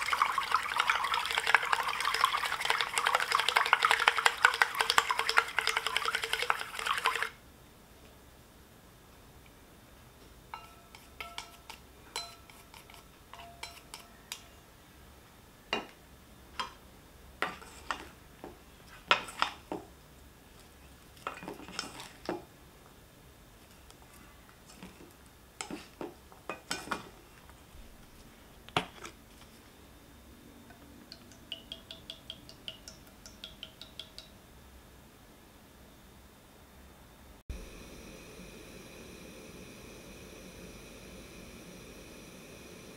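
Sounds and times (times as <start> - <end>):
utensils clinking on metal bowl: 10.5 - 14.5.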